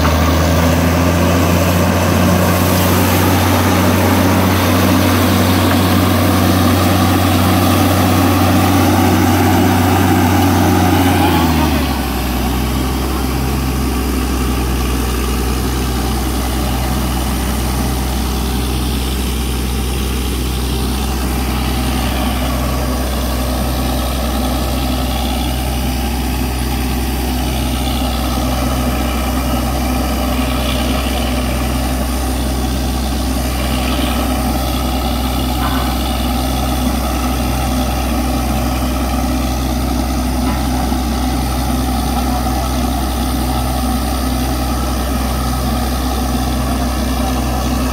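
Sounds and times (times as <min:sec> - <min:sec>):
heavy diesel engine running: 0:00.0 - 0:47.9.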